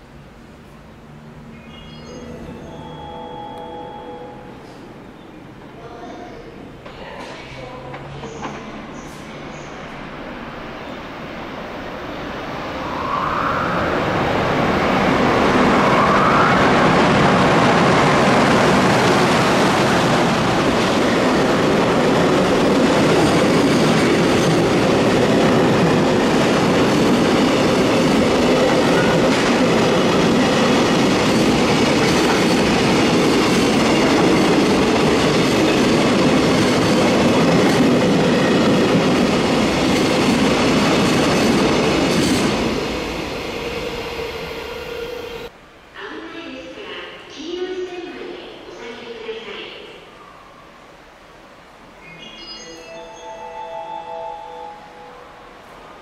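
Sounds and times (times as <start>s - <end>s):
electric locomotive passing: 0.0s - 45.6s, 48.2s - 56.0s
brief rising whines: 12.8s - 14.6s.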